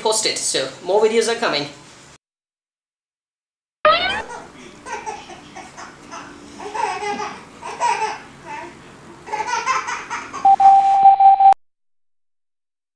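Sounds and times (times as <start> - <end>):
loud electronic tone: 3.9 - 4.3, 10.4 - 11.6
baby laughing: 3.9 - 10.5.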